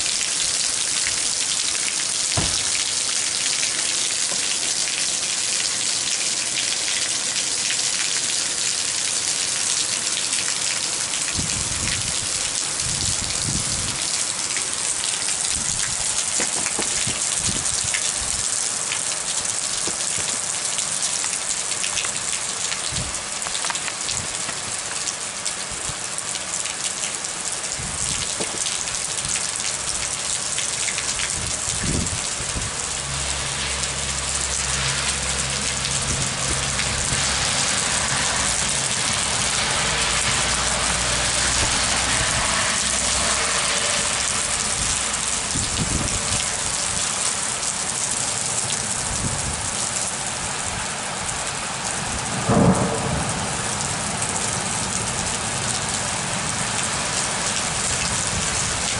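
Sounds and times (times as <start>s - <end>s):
heavy rain pouring: 0.0s - 58.9s
thunder rumbling: 2.3s - 3.2s, 52.1s - 55.8s
loud knock: 2.4s - 2.8s.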